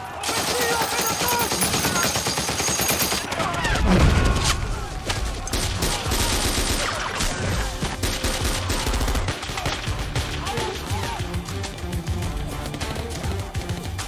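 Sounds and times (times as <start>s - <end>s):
rapid machine gun fire: 0.2s - 4.5s, 5.5s - 7.2s, 7.8s - 10.5s.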